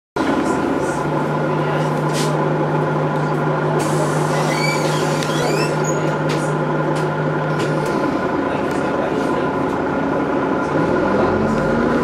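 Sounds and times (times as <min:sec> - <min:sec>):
bus diesel engine droning: 0:00.2 - 0:12.0
short high squeaks: 0:04.3 - 0:06.1.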